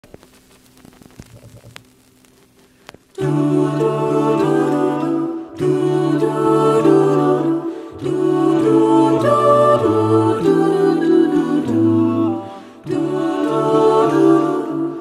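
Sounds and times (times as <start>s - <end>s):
faint clicks: 0.0s - 3.2s
a cappella choir singing chords: 3.2s - 15.0s.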